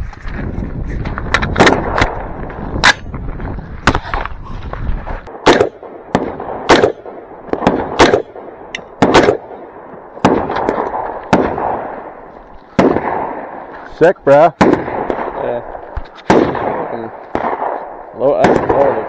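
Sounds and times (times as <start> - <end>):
rifle shots with echo: 1.5 - 3.1, 5.3 - 13.7, 14.3 - 19.0.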